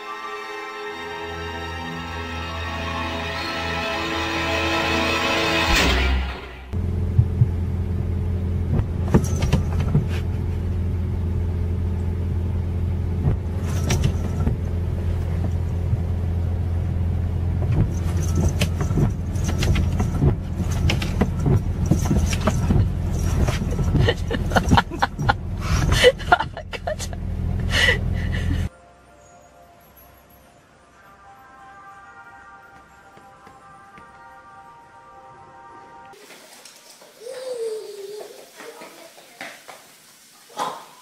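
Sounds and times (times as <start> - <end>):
car engine idling: 6.7 - 28.7
windshield wipers swishing: 8.5 - 10.8, 12.9 - 16.4, 17.3 - 27.1.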